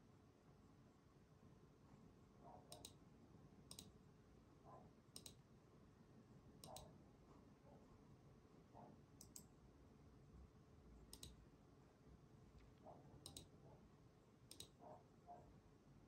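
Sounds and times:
quiet room hum: 0.0s - 16.0s
computer mouse clicks: 2.7s - 3.0s, 3.7s - 4.0s, 5.1s - 5.4s, 6.6s - 7.0s, 9.2s - 9.5s, 11.1s - 11.4s, 13.2s - 13.6s, 14.5s - 14.8s.

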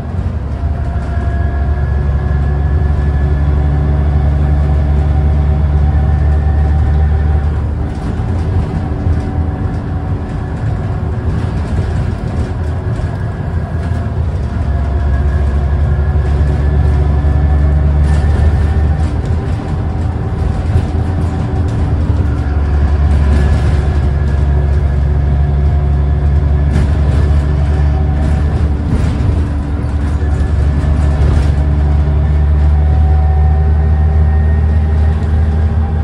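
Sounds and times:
bus diesel engine: 0.0s - 36.0s
road and tyre noise: 0.0s - 36.0s.

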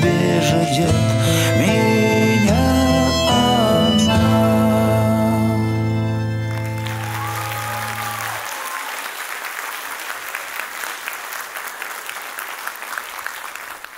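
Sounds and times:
held music chord: 0.0s - 7.0s
audience applauding: 6.4s - 13.9s.

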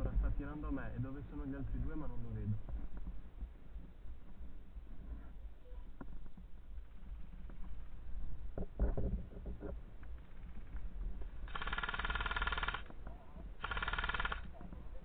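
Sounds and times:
airsoft rifle firing bursts: 11.5s - 12.9s, 13.6s - 14.6s.

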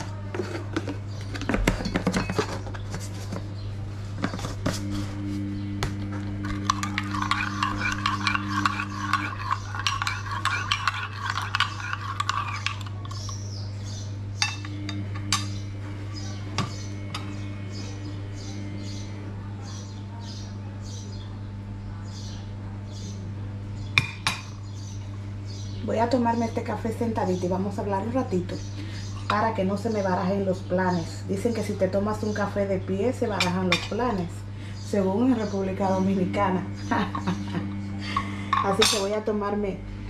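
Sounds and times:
low hum: 4.5s - 13.2s, 34.5s - 40.0s
spoon clinking in ceramic cup: 6.5s - 13.4s, 38.6s - 39.1s.

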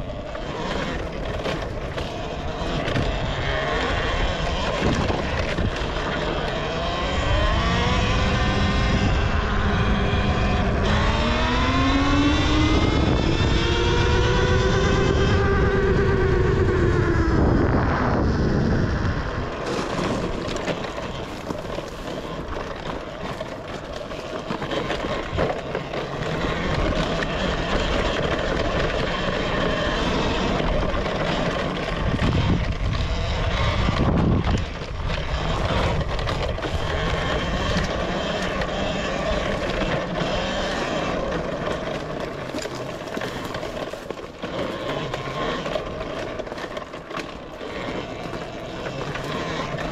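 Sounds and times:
electric motorbike motor whine: 0.0s - 49.9s
wind on microphone: 2.7s - 22.6s, 29.7s - 38.1s.

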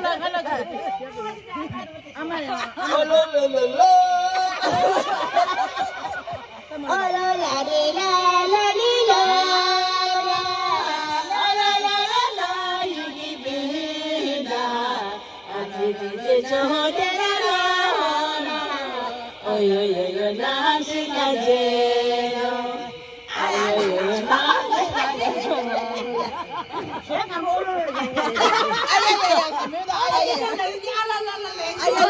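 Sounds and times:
high voice singing: 6.8s - 26.6s.

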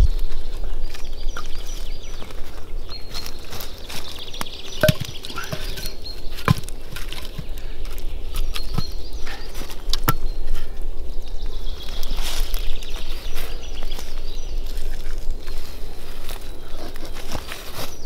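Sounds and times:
firewood sticks knocking together: 4.4s - 9.0s, 9.6s - 10.3s.

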